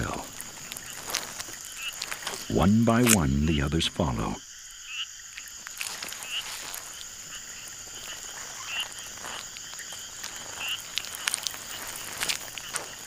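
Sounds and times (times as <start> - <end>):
frogs croaking: 0.0 - 13.0
high insect drone: 0.0 - 13.0
sharp clicks and crackles: 8.4 - 13.0.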